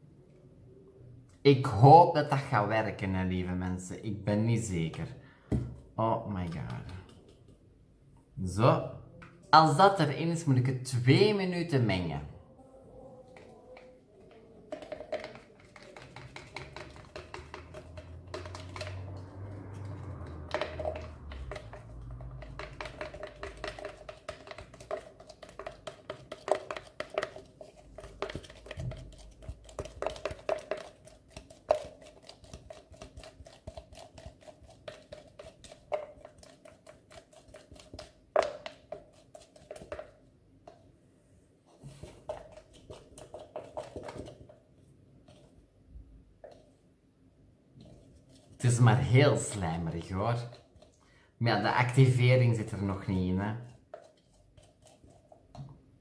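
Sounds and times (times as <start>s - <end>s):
stick knocking jar: 13.3s - 40.8s
stick scraping plastic jar: 13.3s - 40.8s, 41.7s - 44.6s, 47.8s - 51.0s.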